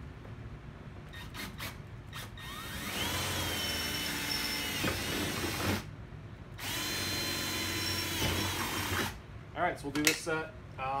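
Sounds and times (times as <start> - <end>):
cordless drill whining: 1.2 - 5.9, 6.6 - 9.2.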